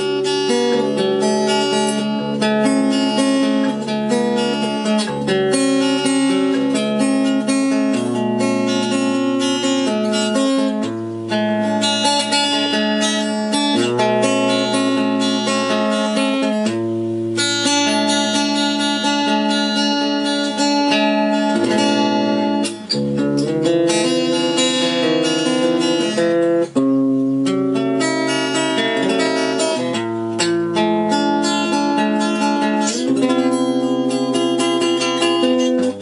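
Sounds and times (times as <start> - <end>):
acoustic guitar strumming: 0.0 - 36.0.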